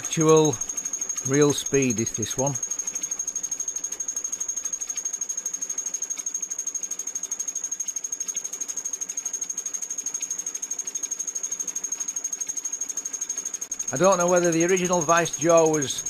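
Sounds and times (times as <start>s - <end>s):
steady high-pitched tone: 0.0s - 8.8s, 13.6s - 16.0s
milling cutter chatter: 13.9s - 16.0s.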